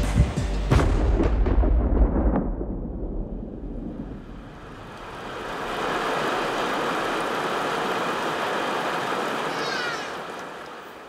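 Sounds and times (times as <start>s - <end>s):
low rumble: 0.7s - 7.4s
steady rain falling: 3.1s - 11.0s.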